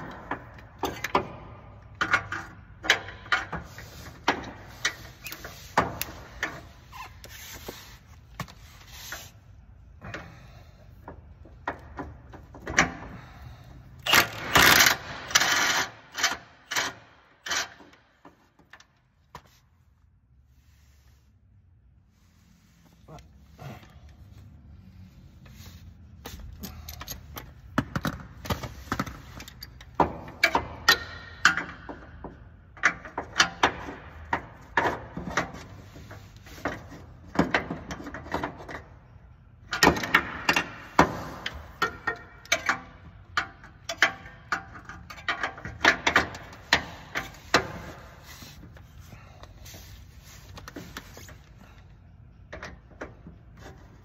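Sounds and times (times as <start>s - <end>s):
ratchet clicking on bolts: 14.0s - 18.0s.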